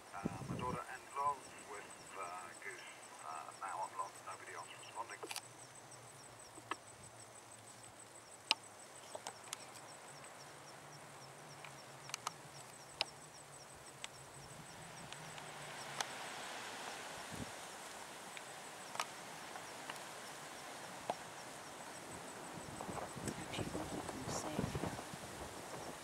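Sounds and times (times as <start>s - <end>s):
low steady hum: 0.0s - 26.0s
sharp clicks: 5.0s - 5.5s, 6.5s - 6.8s, 11.6s - 13.2s, 18.4s - 19.2s.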